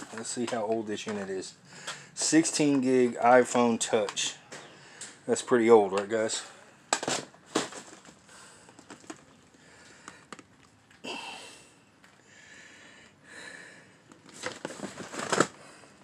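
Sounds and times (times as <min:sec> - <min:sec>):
cardboard and plastic rustling: 0:00.0 - 0:04.2, 0:06.9 - 0:11.0, 0:14.1 - 0:16.0.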